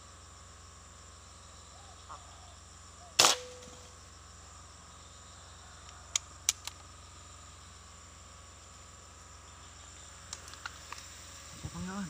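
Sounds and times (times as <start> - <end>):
air rifle shot: 3.2 - 3.8.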